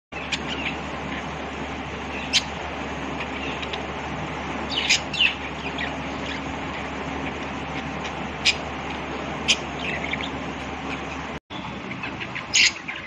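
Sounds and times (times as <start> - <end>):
steady low hum: 0.1 - 13.0
budgerigar chirping: 2.1 - 2.6, 4.7 - 6.4, 7.7 - 8.7, 9.4 - 13.0.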